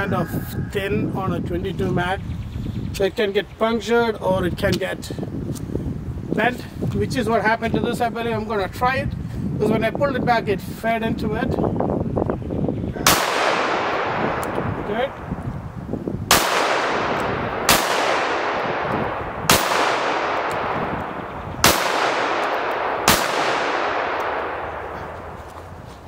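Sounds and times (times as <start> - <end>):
pistol shots echoing: 13.0 - 15.4, 16.3 - 25.5.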